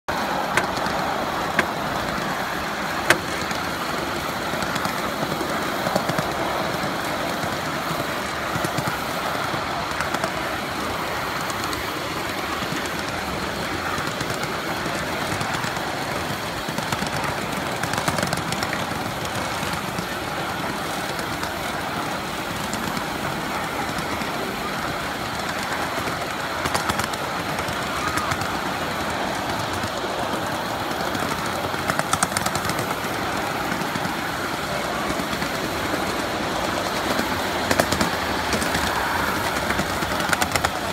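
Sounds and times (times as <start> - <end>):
wheels rumbling and rattling on rail: 0.0 - 40.9
sharp clicks: 0.2 - 6.7.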